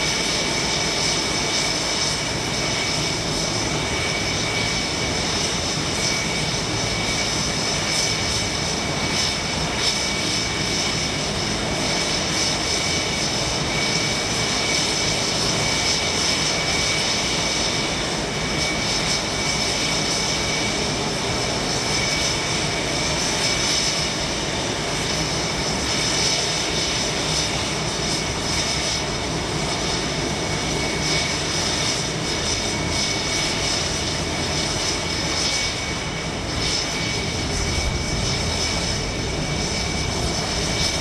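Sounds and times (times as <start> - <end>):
jet engines idling: 0.0 - 41.0.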